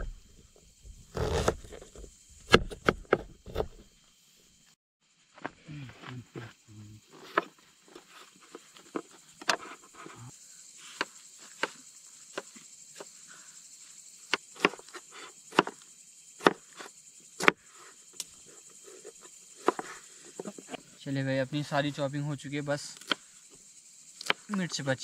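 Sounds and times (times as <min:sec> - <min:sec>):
high insect chirring: 0:00.0 - 0:25.0
knife chopping on wooden board: 0:01.2 - 0:01.8, 0:02.5 - 0:03.7, 0:14.3 - 0:15.8.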